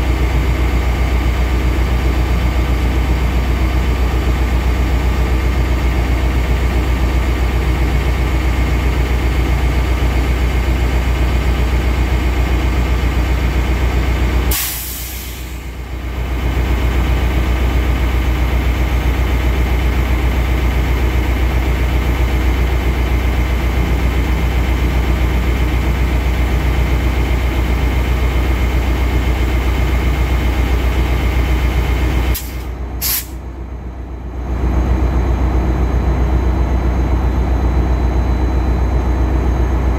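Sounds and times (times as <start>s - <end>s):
diesel locomotive idling: 0.0s - 39.9s
air release hiss: 14.5s - 15.7s, 32.3s - 33.4s.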